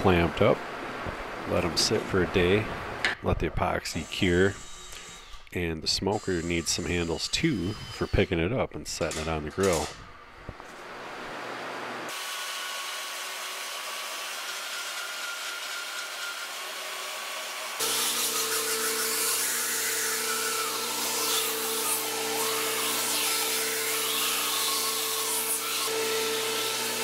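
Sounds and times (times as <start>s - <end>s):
belt grinder sanding wood: 3.8s - 9.8s, 14.4s - 27.0s.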